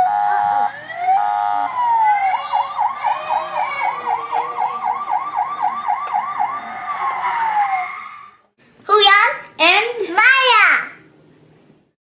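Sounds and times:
toy electronic siren yelping: 0.0s - 8.4s.

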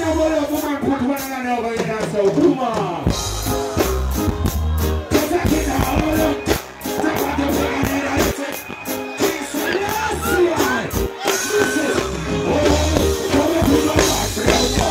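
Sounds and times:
live reggae band: 0.0s - 14.9s
steady drum beat: 0.0s - 14.9s
heavy bass line: 3.1s - 14.9s
man singing: 5.1s - 14.9s.

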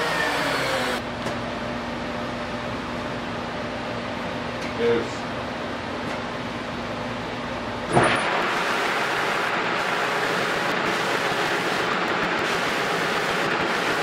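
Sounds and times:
power sander hum: 0.0s - 1.0s.

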